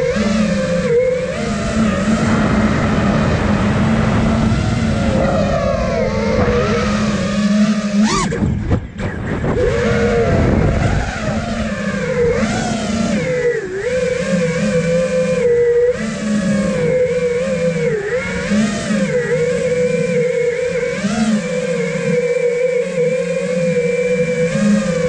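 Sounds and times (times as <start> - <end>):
drone motors whining: 0.0 - 25.0.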